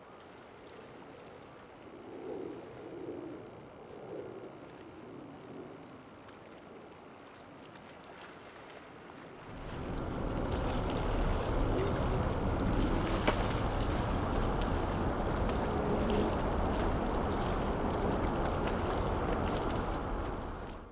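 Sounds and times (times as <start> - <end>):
wind buffeting microphone: 9.4 - 20.9.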